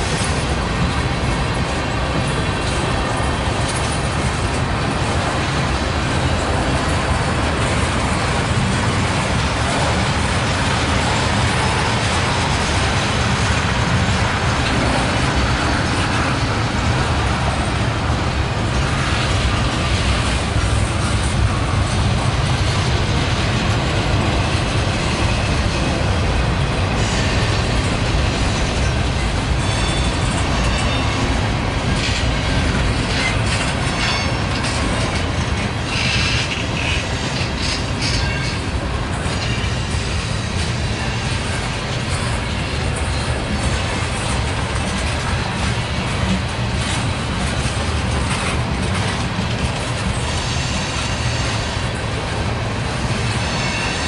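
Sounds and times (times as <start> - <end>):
freight train wheels rumbling: 0.0 - 54.0
high wheel squeal: 29.6 - 31.4, 53.4 - 54.0.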